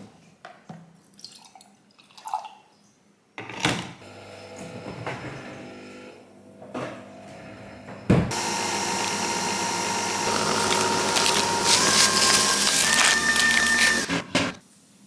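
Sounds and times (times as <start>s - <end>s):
coffee machine pump whine: 4.0s - 6.2s, 7.0s - 14.6s.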